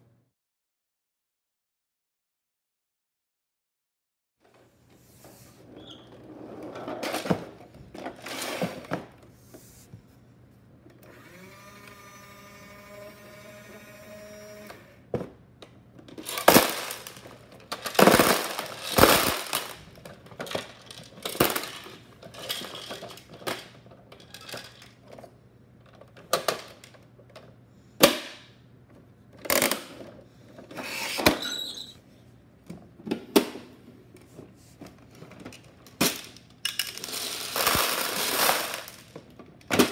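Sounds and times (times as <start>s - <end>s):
plastic toys clattering: 6.7s - 9.2s, 15.9s - 27.6s, 28.9s - 32.0s, 34.8s - 39.9s.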